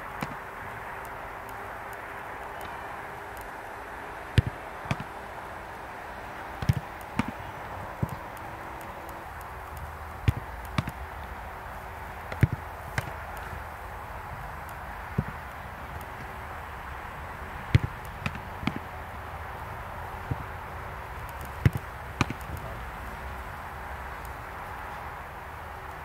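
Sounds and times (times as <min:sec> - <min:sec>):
steady background hiss: 0:00.0 - 0:26.0
football kicked and caught thuds: 0:04.4 - 0:05.1, 0:12.3 - 0:13.2, 0:17.7 - 0:18.8.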